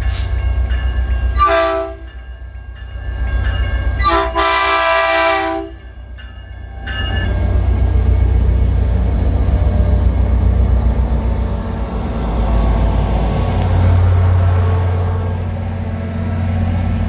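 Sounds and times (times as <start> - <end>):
locomotive rumble: 0.0 - 17.0
locomotive horn blasts: 1.3 - 2.1, 4.0 - 5.8.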